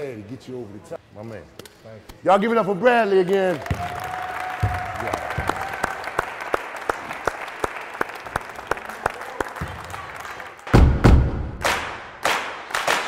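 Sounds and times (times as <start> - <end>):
crowd applauding: 3.2 - 10.8
loud low thud: 10.8 - 11.6
sharp hand claps close by: 11.6 - 13.0.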